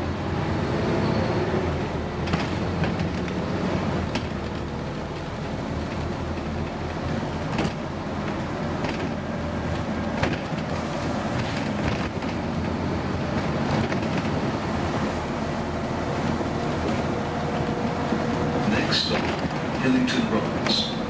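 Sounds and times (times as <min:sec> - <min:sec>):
diesel bus engine running: 0:00.0 - 0:21.0
road and tyre noise: 0:00.0 - 0:21.0
bus body rattling: 0:01.8 - 0:21.0.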